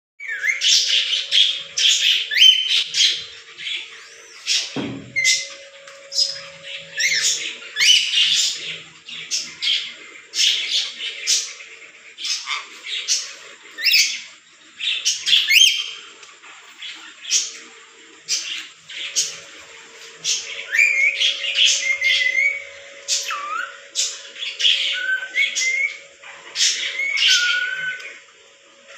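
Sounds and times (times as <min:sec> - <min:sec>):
lorikeets screeching and chirping: 0:00.2 - 0:17.6, 0:18.3 - 0:28.2.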